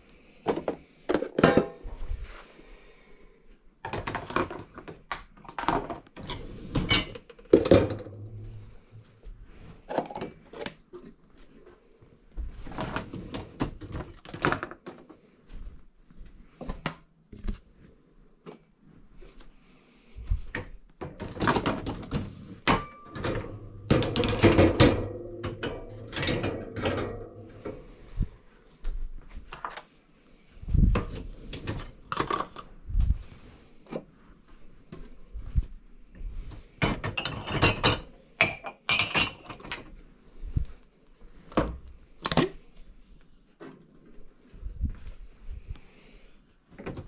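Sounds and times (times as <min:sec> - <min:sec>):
crockery and glasses clattering: 0:22.7 - 0:27.8, 0:36.8 - 0:39.9.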